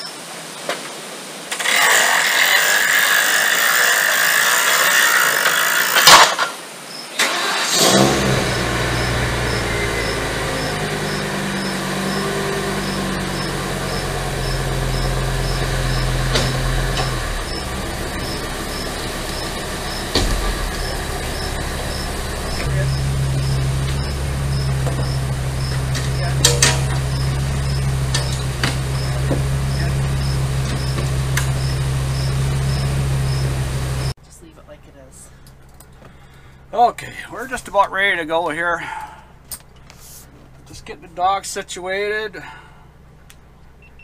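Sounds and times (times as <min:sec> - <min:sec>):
engine cranking and idling: 0:07.2 - 0:34.2
loud rushing noise: 0:07.9 - 0:32.5
sharp knock: 0:19.4 - 0:24.2.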